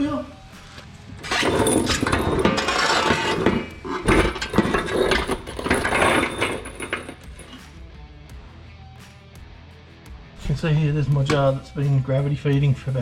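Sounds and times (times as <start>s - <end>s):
wheel dolly clattering on concrete: 1.2s - 7.6s.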